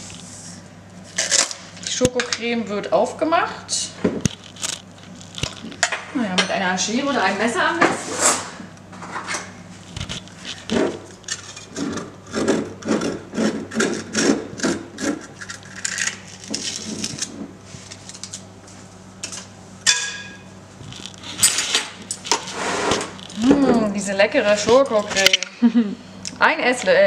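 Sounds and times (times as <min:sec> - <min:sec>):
foil seal scraping: 0:09.8 - 0:18.4, 0:20.9 - 0:23.5.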